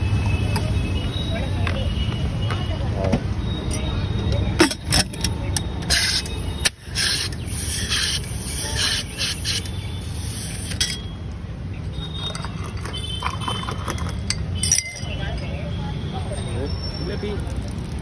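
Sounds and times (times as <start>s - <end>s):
street traffic rumble: 0.0s - 18.0s
soda water hissing into glasses: 6.9s - 10.8s
glass clinks: 12.1s - 15.9s.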